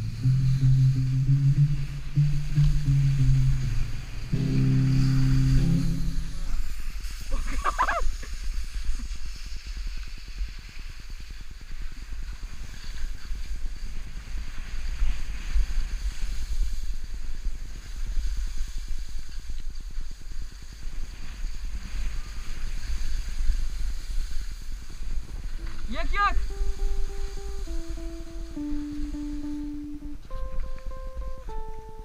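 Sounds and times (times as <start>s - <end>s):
wind buffeting microphone: 0.0s - 32.0s
skis scraping over snow: 5.8s - 29.0s.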